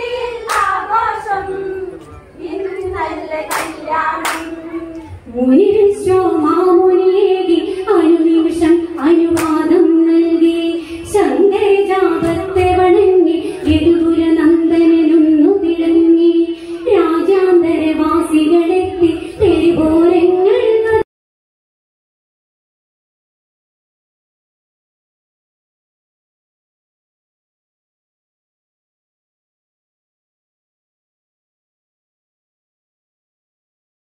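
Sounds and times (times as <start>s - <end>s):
women singing folk song: 0.0s - 21.0s
sharp handclaps: 0.4s - 0.8s, 3.5s - 4.6s, 9.3s - 9.6s.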